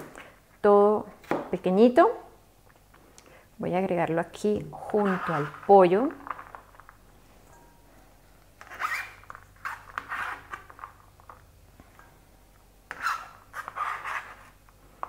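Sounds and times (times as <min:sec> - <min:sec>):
knife scraping on cutting board: 0:12.9 - 0:14.6.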